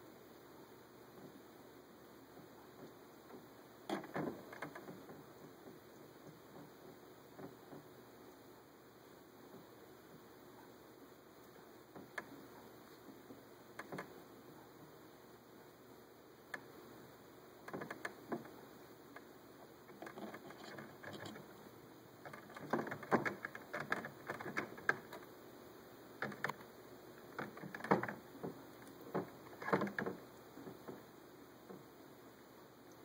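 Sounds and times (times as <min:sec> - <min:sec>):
claws clicking on plastic: 0:02.8 - 0:07.9, 0:13.7 - 0:14.2, 0:17.6 - 0:21.6, 0:22.2 - 0:25.3, 0:26.2 - 0:31.0.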